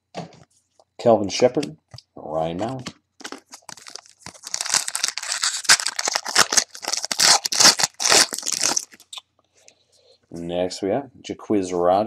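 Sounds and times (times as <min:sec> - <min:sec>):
wrapper crinkling: 0:02.6 - 0:09.2.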